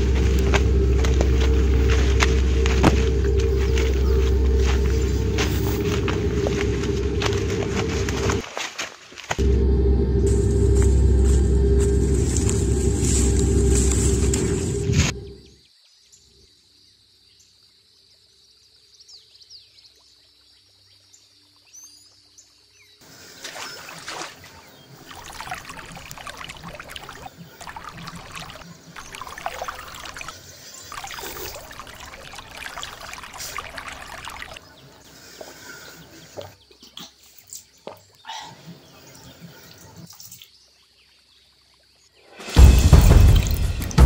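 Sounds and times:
hands splashing water in stream: 0:23.4 - 0:34.6.

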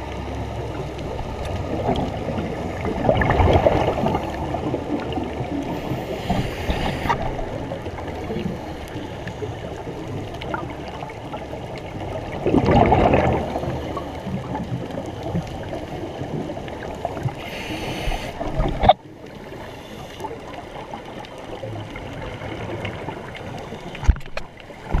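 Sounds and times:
gurgle of exhaled bubbles: 0:00.0 - 0:19.6
muffled underwater noise: 0:00.0 - 0:25.0.

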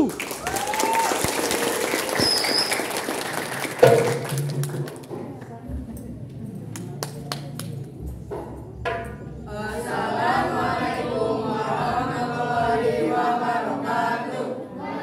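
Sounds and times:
boys chanting in unison: 0:09.4 - 0:15.0.

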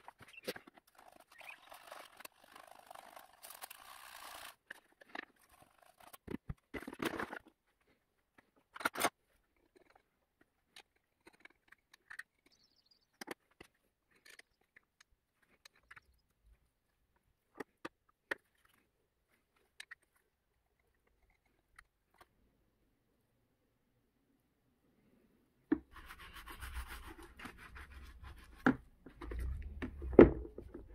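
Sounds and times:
brush scrubbing carbon on metal: 0:25.9 - 0:28.6.

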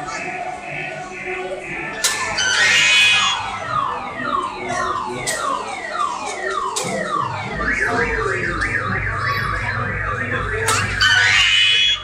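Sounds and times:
electronic yelp siren: 0:00.0 - 0:12.0
electronic falling chirps: 0:02.3 - 0:03.6.

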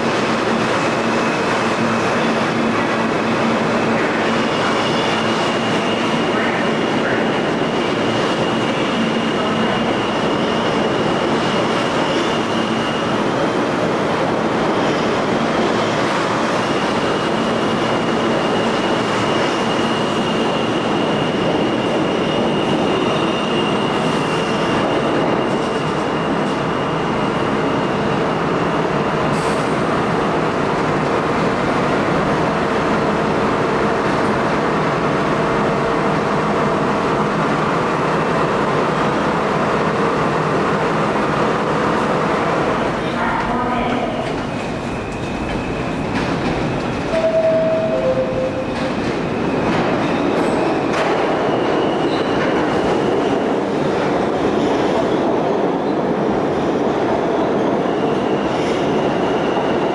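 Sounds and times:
subway train wheels rumbling: 0:00.0 - 0:59.9
high wheel squeal: 0:16.7 - 0:28.2.

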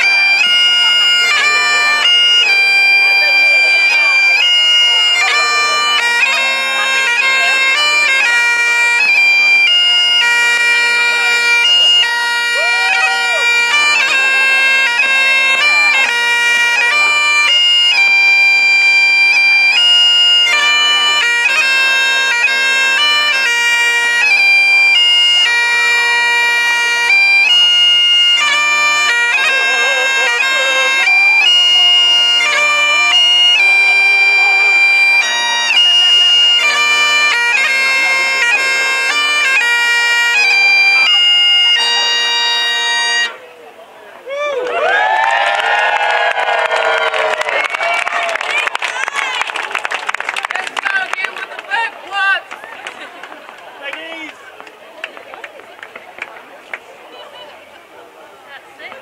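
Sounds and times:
bagpipe melody: 0:00.0 - 0:43.5
bagpipe drone: 0:00.0 - 0:43.6.

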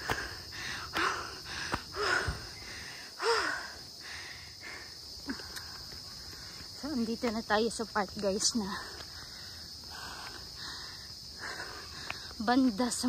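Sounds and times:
person breathing hard: 0:00.0 - 0:06.7, 0:08.7 - 0:12.4
insects chirping: 0:00.0 - 0:13.0.

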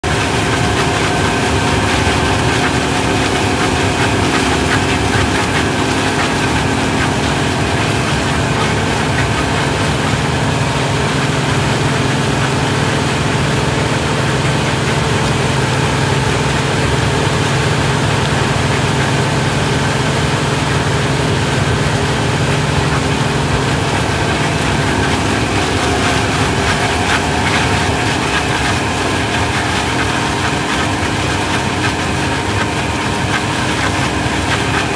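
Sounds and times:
harvester engine hum: 0:00.0 - 0:34.9
machinery whining: 0:17.5 - 0:34.9.

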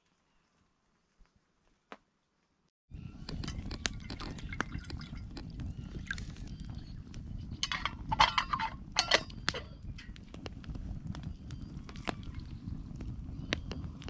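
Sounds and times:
campfire crackling: 0:03.1 - 0:14.0
water pouring into kettle: 0:03.7 - 0:05.4
kettle lid clattering: 0:07.6 - 0:09.6.

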